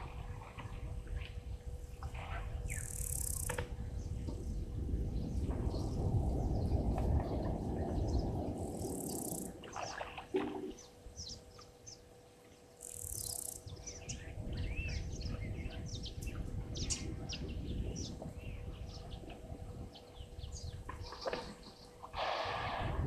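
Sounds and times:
wind rumble on microphone: 0.0 - 11.6, 13.2 - 23.0
wild birds chirping: 2.2 - 3.6, 5.7 - 22.5.

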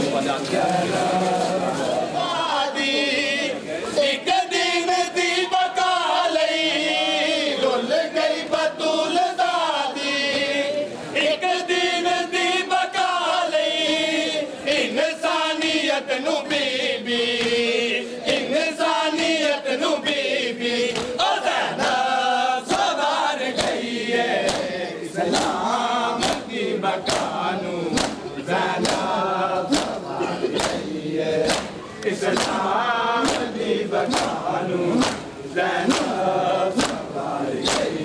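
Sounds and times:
men chanting in unison: 0.0 - 38.0
palms slapping chests: 26.2 - 29.1, 31.4 - 38.0.

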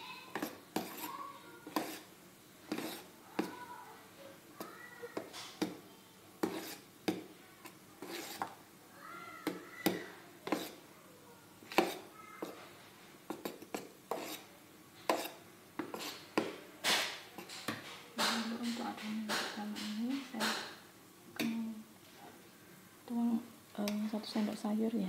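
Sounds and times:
metal spoon stirring in metal bowl: 0.0 - 3.7, 6.4 - 8.6, 9.5 - 10.8, 11.7 - 12.6, 13.3 - 20.8.

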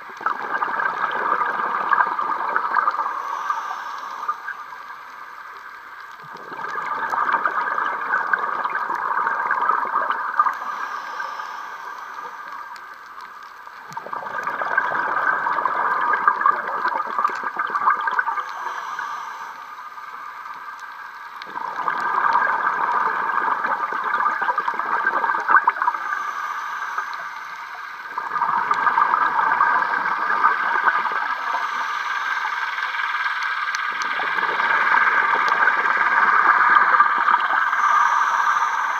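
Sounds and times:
bubbling regulator exhalations: 0.0 - 4.6, 6.2 - 10.8, 13.8 - 19.0, 21.4 - 26.2, 28.1 - 32.0.

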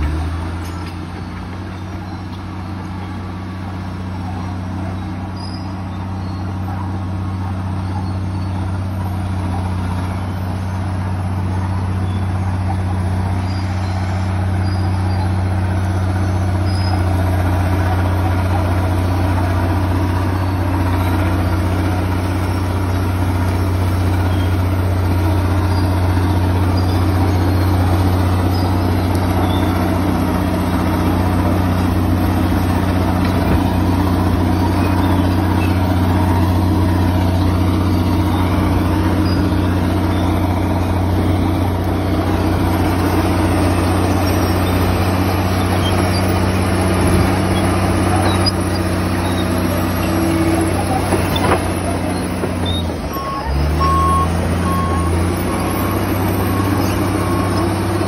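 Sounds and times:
bulldozer diesel engine running: 0.0 - 58.0.

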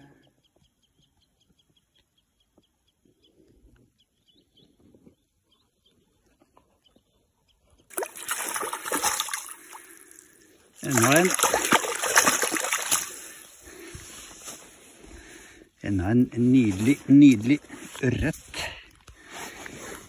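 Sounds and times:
bird chirping: 0.0 - 7.9
fish splashing in a net: 7.9 - 13.5.

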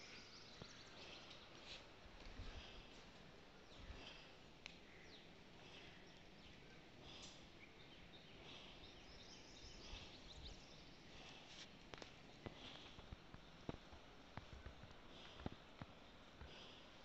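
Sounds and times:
faint bird chirps: 0.0 - 1.8.

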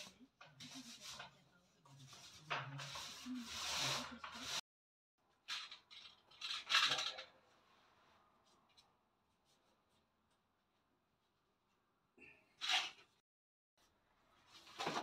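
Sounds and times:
paint roller rubbing on wall: 2.0 - 4.6.

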